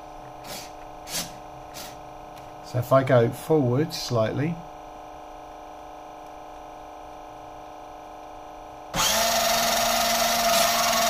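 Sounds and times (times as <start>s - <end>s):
electrical hum: 0.0s - 11.0s
electric motor whirring and whining: 8.9s - 11.0s.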